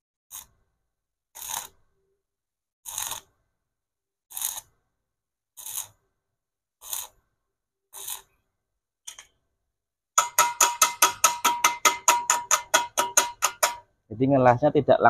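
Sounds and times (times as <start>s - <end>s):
arc welding crackling: 1.4s - 1.7s, 2.9s - 3.3s, 6.8s - 7.1s, 8.0s - 8.3s
chipping hammer tapping metal: 10.2s - 13.9s.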